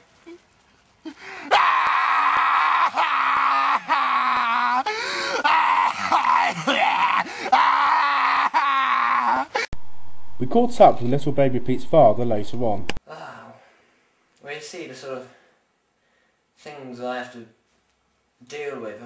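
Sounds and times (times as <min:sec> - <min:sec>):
man imitating baby crying: 0:01.5 - 0:09.7.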